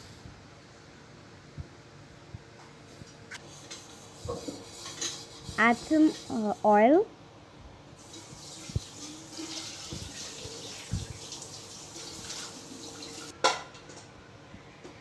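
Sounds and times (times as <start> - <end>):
oil pouring into a pan: 8.0 - 13.3.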